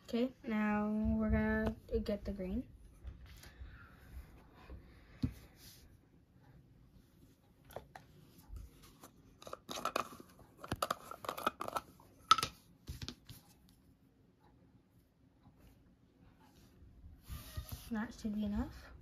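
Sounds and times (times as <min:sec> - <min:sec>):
plastic jar scraping and crackling: 0:09.4 - 0:12.0.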